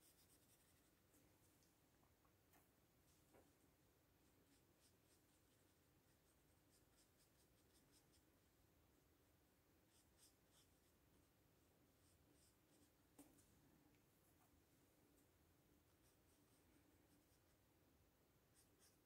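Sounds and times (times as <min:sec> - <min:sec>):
brush strokes on paper: 0:00.0 - 0:01.8, 0:03.0 - 0:03.6, 0:04.2 - 0:09.0, 0:09.8 - 0:15.0, 0:15.7 - 0:17.7, 0:18.4 - 0:19.0.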